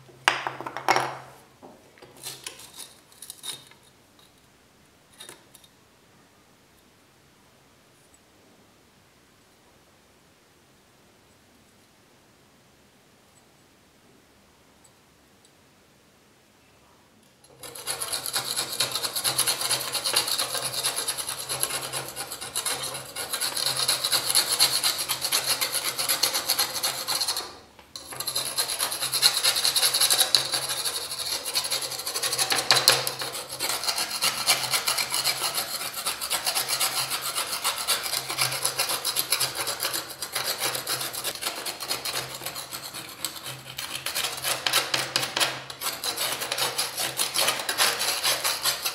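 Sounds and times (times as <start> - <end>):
scraper rasping rust off metal: 17.5 - 48.9.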